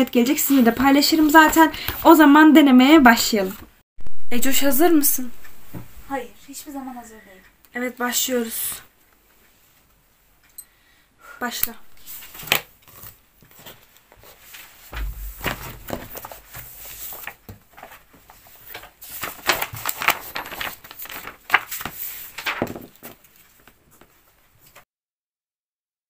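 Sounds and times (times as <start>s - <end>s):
paper rustling: 12.0s - 24.8s
dull thump: 14.9s - 16.4s.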